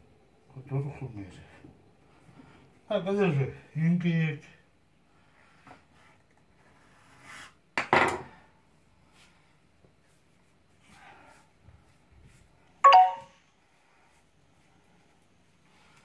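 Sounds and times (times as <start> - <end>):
faint rubbing of dough: 5.0 - 7.8, 8.5 - 12.8, 13.6 - 16.0.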